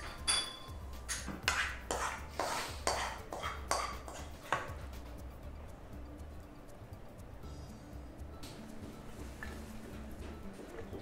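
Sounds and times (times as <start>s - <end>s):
utensil scraping a pan: 1.2s - 4.7s.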